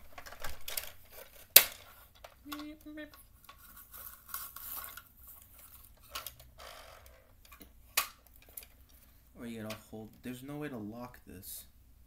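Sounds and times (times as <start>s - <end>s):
sharp plastic clacks: 0.0s - 3.7s, 7.3s - 9.0s.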